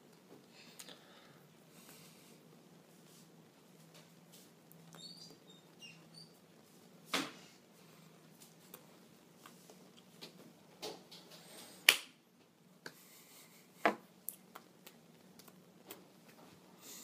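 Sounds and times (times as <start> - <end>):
hands smacking: 11.9 - 12.2.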